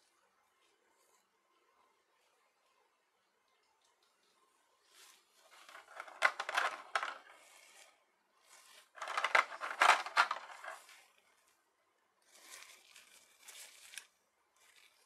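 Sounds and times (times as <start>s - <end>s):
plastic tray crackling and clicking: 5.5s - 7.3s, 9.0s - 10.9s.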